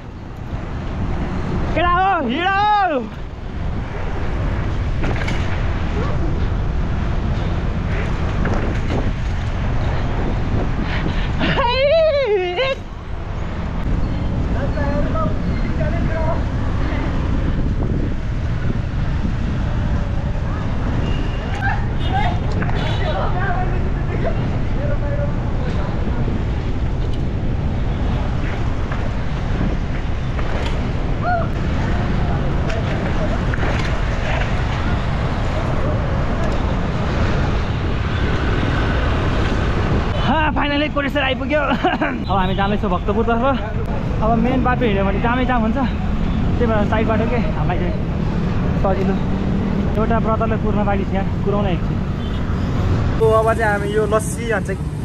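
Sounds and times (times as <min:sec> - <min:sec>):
road traffic noise: 0:00.0 - 0:55.0
wind rumble on microphone: 0:03.1 - 0:22.8.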